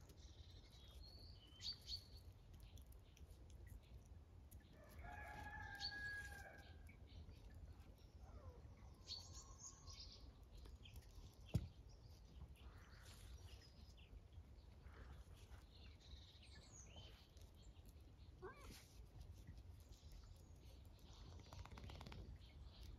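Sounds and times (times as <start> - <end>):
small birds chirping: 0.0 - 22.9
rooster crowing: 5.0 - 6.6.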